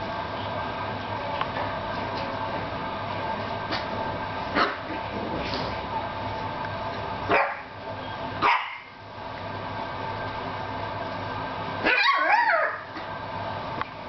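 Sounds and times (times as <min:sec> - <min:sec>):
puppies yapping: 0:11.8 - 0:12.9.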